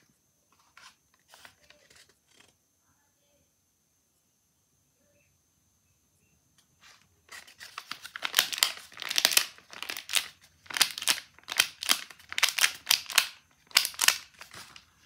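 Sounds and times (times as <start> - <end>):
paper crinkling: 0.6 - 2.5, 6.8 - 15.0.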